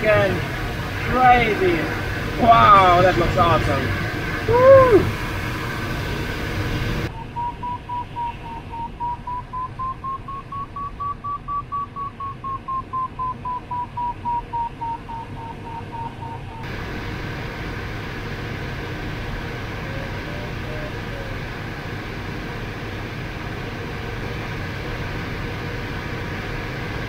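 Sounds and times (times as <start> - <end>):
cockpit airflow rush: 0.0 - 27.0
variometer beeping: 7.1 - 16.7.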